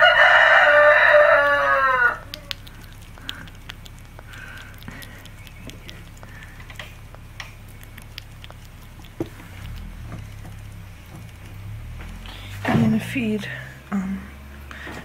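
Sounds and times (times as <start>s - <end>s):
squirrel chewing clicks: 0.0s - 13.4s.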